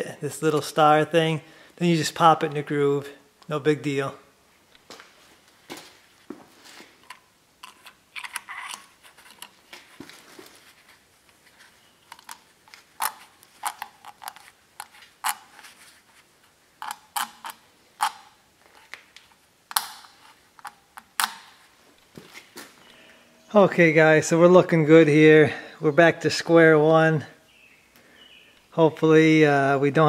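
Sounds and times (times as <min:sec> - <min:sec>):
gloves rustling: 0:04.8 - 0:19.4, 0:20.0 - 0:23.0
small metal clicks and scrapes: 0:07.0 - 0:09.6, 0:12.0 - 0:15.9, 0:16.8 - 0:19.0.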